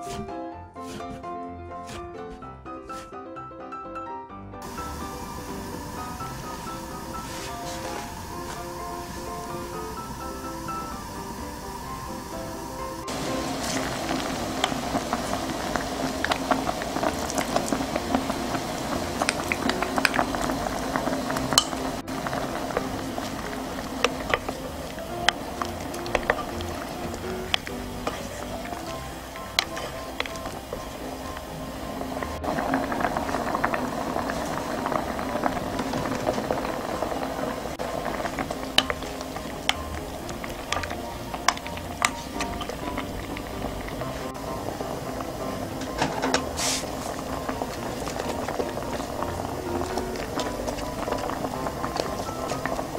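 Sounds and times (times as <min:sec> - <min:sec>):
stock boiling with bubbling pops: 0:04.6 - 0:52.9
wooden spoon knocking in pot: 0:13.1 - 0:31.4, 0:38.2 - 0:44.5.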